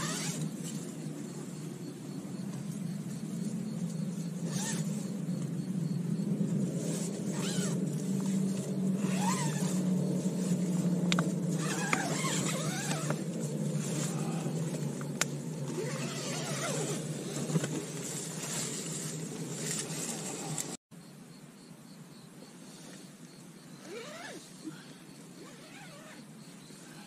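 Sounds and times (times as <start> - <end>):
tent fabric rustling: 0.0 - 1.4, 2.6 - 5.3, 6.4 - 20.8, 23.8 - 24.6, 25.4 - 27.0
steady low hum: 0.0 - 27.0.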